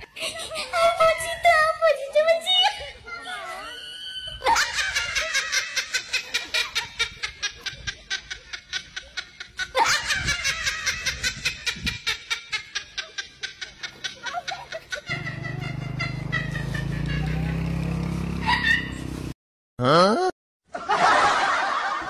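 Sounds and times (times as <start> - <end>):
rapid rhythmic laughter: 4.3 - 17.7.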